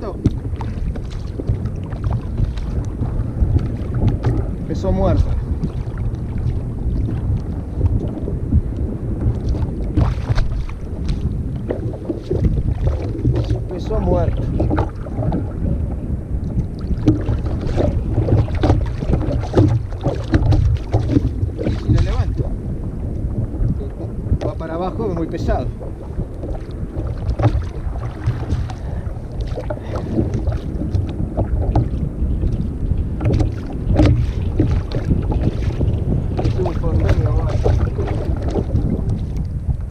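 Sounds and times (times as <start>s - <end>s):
sea water around kayak: 0.0s - 39.9s
wind buffeting microphone: 0.0s - 39.9s.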